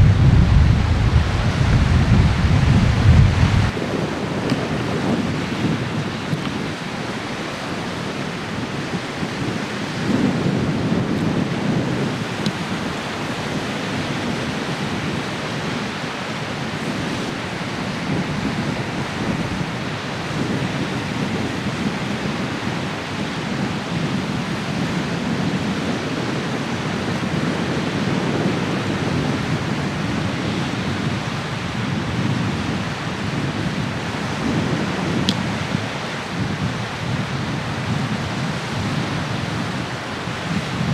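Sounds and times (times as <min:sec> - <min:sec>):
waves washing on shore: 0:00.0 - 0:40.9
wind blowing over microphone: 0:00.0 - 0:40.9.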